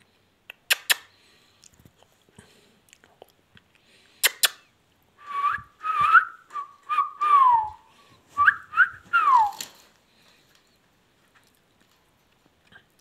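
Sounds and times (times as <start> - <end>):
sharp clicks: 0.5 - 1.1.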